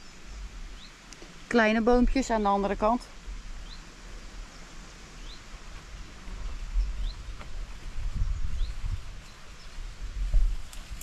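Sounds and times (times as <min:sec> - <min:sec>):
wind rumble on microphone: 0:05.2 - 0:11.0.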